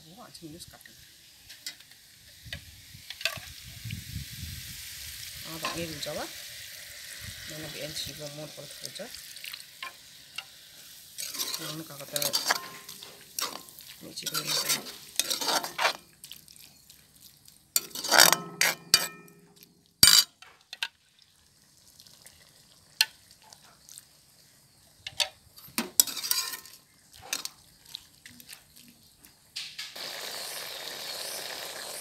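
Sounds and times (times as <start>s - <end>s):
steady sizzle: 0.1s - 32.0s
ladle scraping metal wok: 9.8s - 16.0s, 17.8s - 19.4s, 20.0s - 20.8s, 25.8s - 27.6s
sharp metal clanks: 17.8s - 20.4s.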